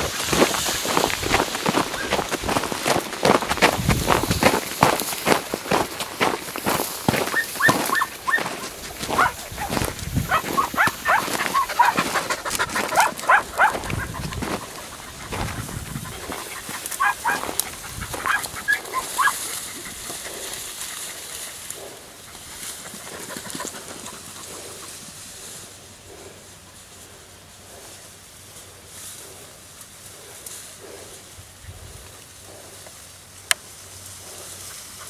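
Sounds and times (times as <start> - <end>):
rustling through reeds: 0.0 - 35.0
dogs yelping barks: 7.1 - 22.4.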